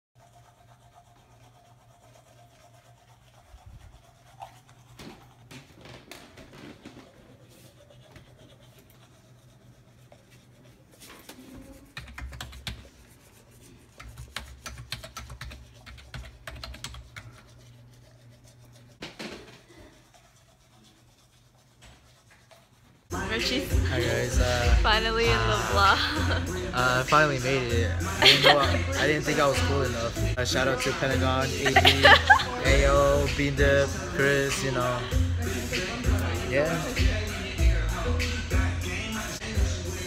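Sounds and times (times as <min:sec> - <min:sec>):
computer keyboard typing: 0:12.0 - 0:12.9, 0:14.0 - 0:17.3.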